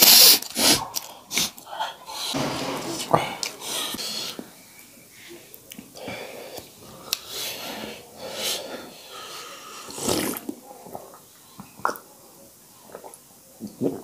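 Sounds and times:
heavy hissing breaths: 0:03.6 - 0:10.4.

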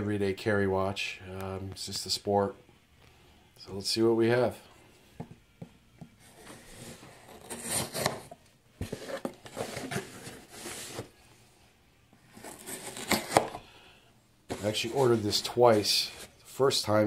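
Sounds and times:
cardboard box rustling and scraping: 0:06.2 - 0:11.2, 0:12.3 - 0:13.6, 0:14.5 - 0:16.4.

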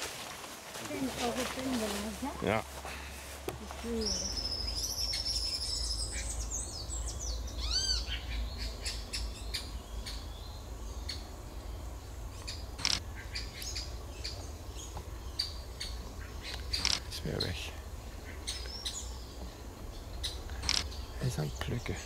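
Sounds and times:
sharp clicks and short calls: 0:12.4 - 0:13.7, 0:16.4 - 0:17.6, 0:20.4 - 0:21.3.

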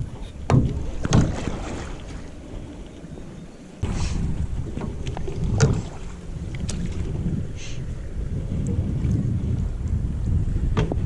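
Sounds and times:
boat paddling by hand: 0:00.0 - 0:11.0
wind rumbling on microphone: 0:00.0 - 0:11.0.

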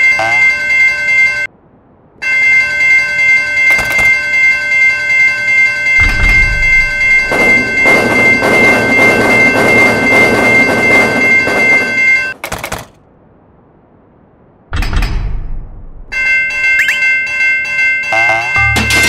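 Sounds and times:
crossing warning bells ringing: 0:00.0 - 0:01.6, 0:02.2 - 0:12.4, 0:16.0 - 0:19.0
train wheels clattering over rails: 0:06.0 - 0:13.0.

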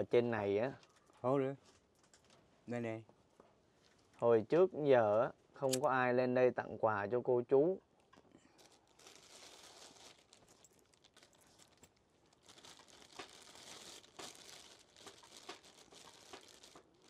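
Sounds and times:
plastic bag crinkling: 0:08.5 - 0:17.0.

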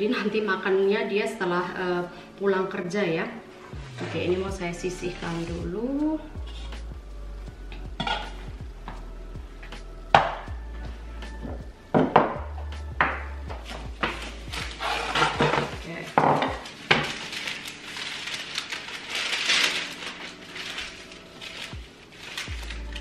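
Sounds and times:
baking paper rustling: 0:03.8 - 0:05.7, 0:13.6 - 0:23.0.

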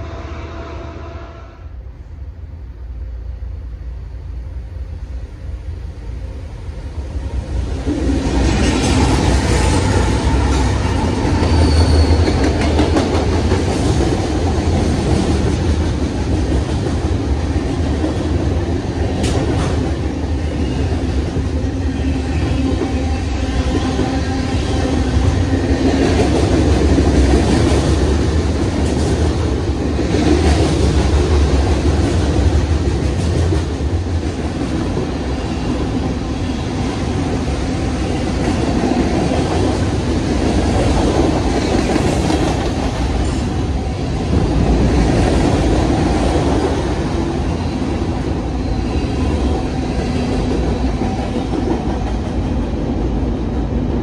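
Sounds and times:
train wheels rumbling on rails: 0:02.9 - 0:54.0
thin wheel squeal: 0:11.4 - 0:12.3.

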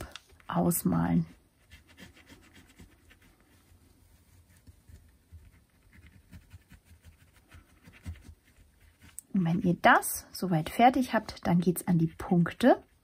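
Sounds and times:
pen scratching on paper: 0:01.2 - 0:10.0.

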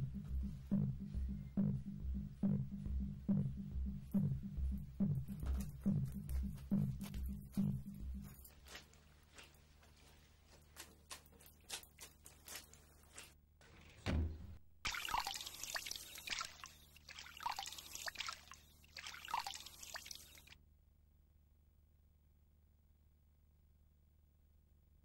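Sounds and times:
dull thump: 0:14.0 - 0:14.6
hands splashing water: 0:14.9 - 0:20.6
tap water running into basin: 0:14.9 - 0:20.6.

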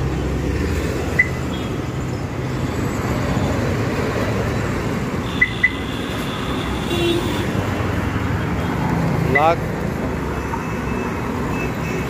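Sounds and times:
traffic rumble: 0:00.0 - 0:12.0
car remote locking beeps: 0:01.2 - 0:01.4.

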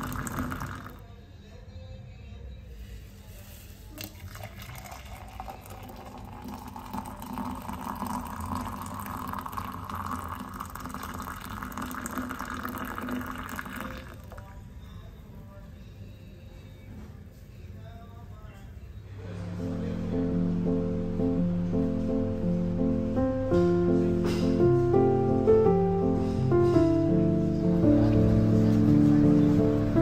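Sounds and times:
water pouring into a mug: 0:00.0 - 0:01.0, 0:03.9 - 0:14.6.

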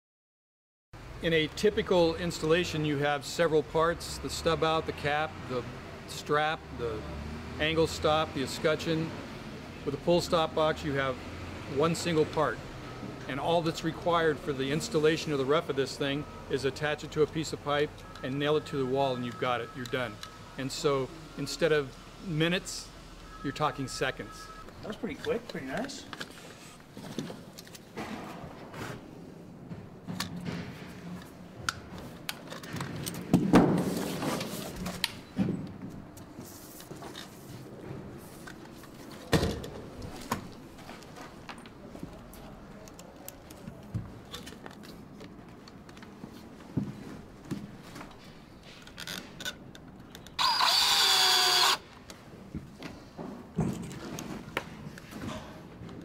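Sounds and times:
cordless drill driving screw: 0:50.4 - 0:51.8.

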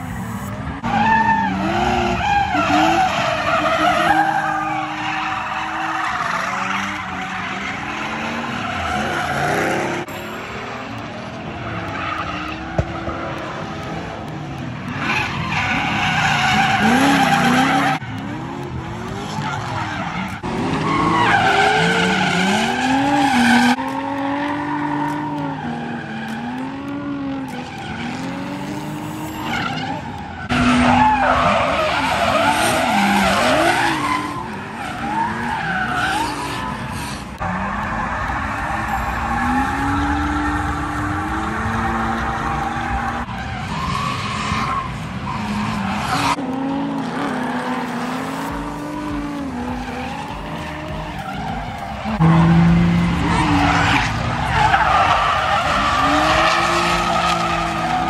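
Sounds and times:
car engines revving: 0:00.0 - 0:58.0
tyres squealing: 0:14.9 - 0:46.4.

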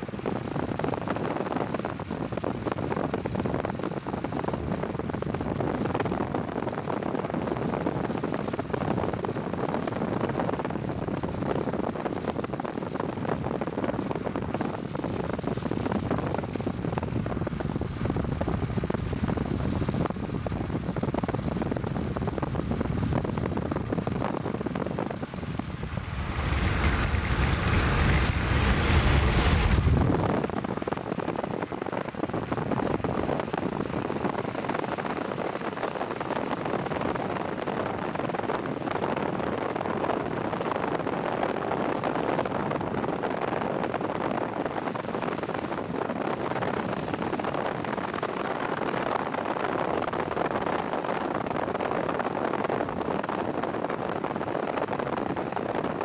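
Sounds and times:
car road and wind noise: 0:00.0 - 0:56.0
loud rushing noise: 0:24.7 - 0:30.8.

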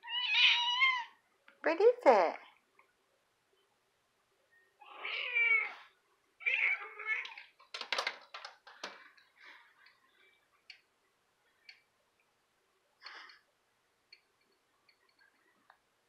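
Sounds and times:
cat meowing: 0:00.0 - 0:01.2, 0:04.8 - 0:07.4
clicks and knocks on tiled sill: 0:07.6 - 0:09.0.

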